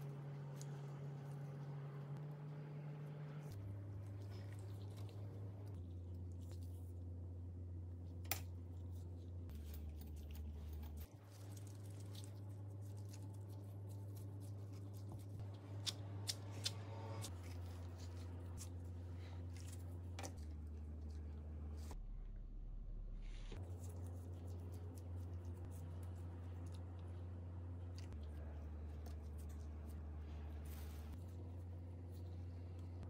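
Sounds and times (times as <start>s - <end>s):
soft handling of dough: 0.0s - 16.2s, 23.2s - 33.0s
steady low hum: 0.0s - 33.0s.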